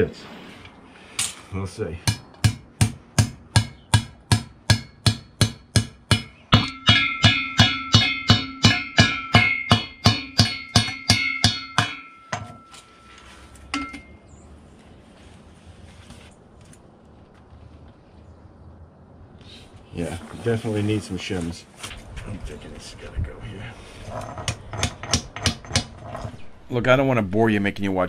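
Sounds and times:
hammer blows on metal: 0:02.0 - 0:14.2.

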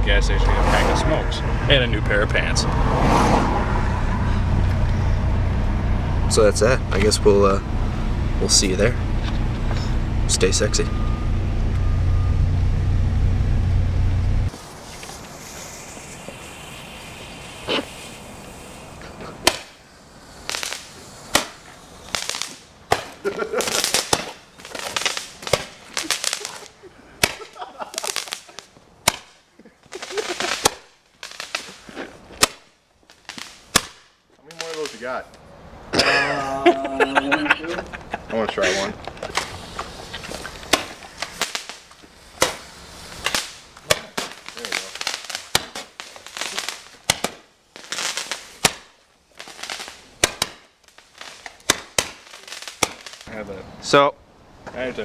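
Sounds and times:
firework hissing and crackling: 0:01.9 - 0:11.6, 0:14.5 - 0:35.3, 0:37.8 - 0:54.0
firework pops: 0:14.5 - 0:26.6, 0:27.2 - 0:35.1, 0:39.0 - 0:53.3.

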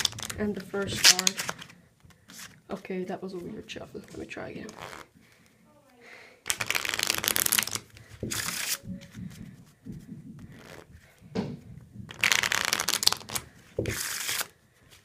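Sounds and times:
playing cards riffle shuffled: 0:00.0 - 0:02.6, 0:04.7 - 0:05.1, 0:06.5 - 0:09.3, 0:10.5 - 0:10.9, 0:12.1 - 0:14.5
cards rustling: 0:00.0 - 0:05.5, 0:06.5 - 0:11.3, 0:12.1 - 0:15.0.

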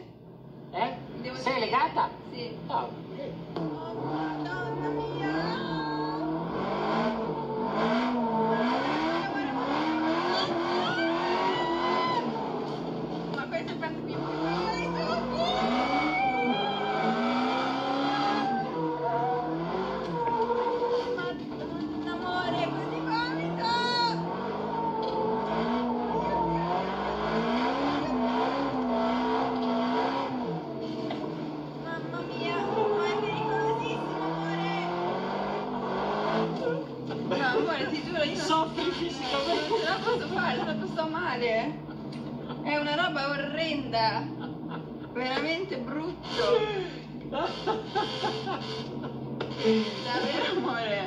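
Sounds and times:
race car engine revving: 0:00.0 - 0:51.0
tyre squeal: 0:09.9 - 0:12.7, 0:14.6 - 0:21.4, 0:46.1 - 0:50.7.

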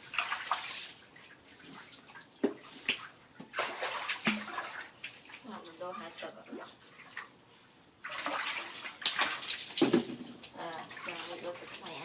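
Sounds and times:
water splashing in steel basin: 0:00.0 - 0:05.6, 0:08.0 - 0:12.0.

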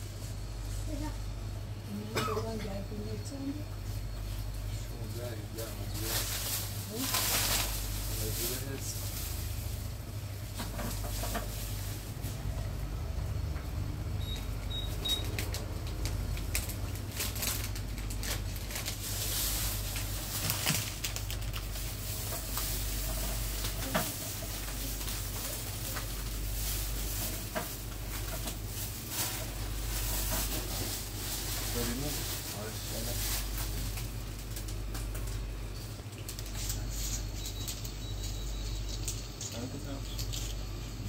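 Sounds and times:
steady low hum: 0:00.0 - 0:41.0
plastic bags crinkling: 0:05.2 - 0:12.7, 0:15.2 - 0:37.9.

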